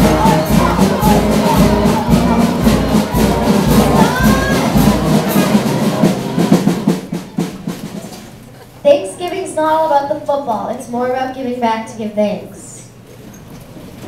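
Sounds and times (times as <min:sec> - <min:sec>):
pulsing bass beat: 0:00.0 - 0:06.1
loud music: 0:00.0 - 0:07.5.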